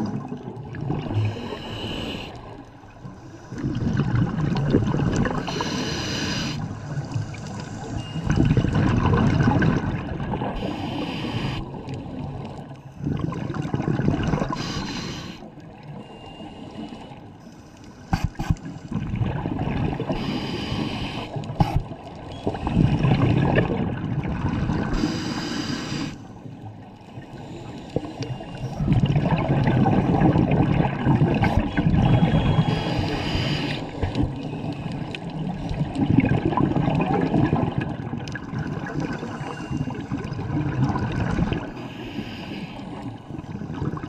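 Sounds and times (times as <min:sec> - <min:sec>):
exhaled bubbles rumbling: 0:00.0 - 0:05.6, 0:06.6 - 0:11.0, 0:11.6 - 0:14.8, 0:18.3 - 0:20.2, 0:21.4 - 0:25.2, 0:26.4 - 0:41.8, 0:43.0 - 0:44.0
regulator hissing inhalation: 0:01.3 - 0:02.4, 0:05.5 - 0:06.6, 0:10.6 - 0:11.7, 0:14.5 - 0:15.4, 0:20.2 - 0:21.8, 0:25.0 - 0:26.2, 0:32.6 - 0:34.0, 0:41.8 - 0:43.0.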